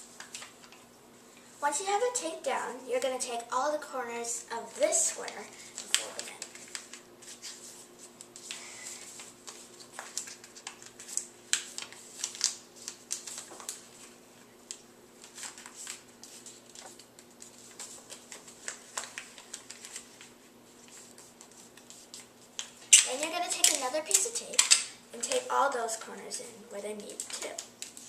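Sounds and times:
paper crinkling and creasing: 0:04.6 - 0:24.2, 0:27.0 - 0:28.0.

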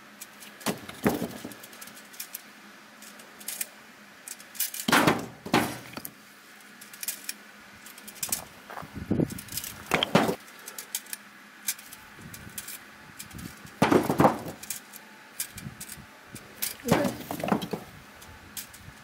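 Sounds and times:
wood chunks knocking together: 0:00.6 - 0:01.7, 0:04.8 - 0:06.1, 0:09.8 - 0:10.4, 0:13.8 - 0:14.7, 0:16.6 - 0:17.9.

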